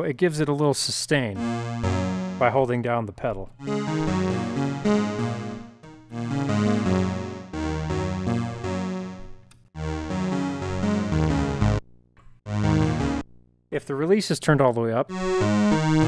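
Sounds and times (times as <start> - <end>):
synthesizer playing chords: 1.4 - 3.0, 3.6 - 11.8, 12.5 - 13.5, 15.1 - 16.0.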